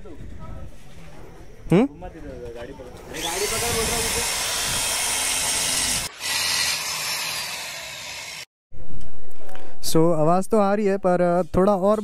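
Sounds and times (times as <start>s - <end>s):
electric drill whining: 3.1s - 8.5s.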